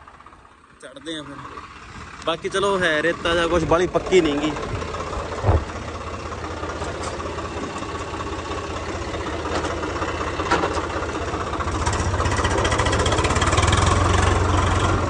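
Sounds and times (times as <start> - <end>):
tractor diesel engine idling: 0.0 - 15.0
light engine knocks: 4.3 - 5.9.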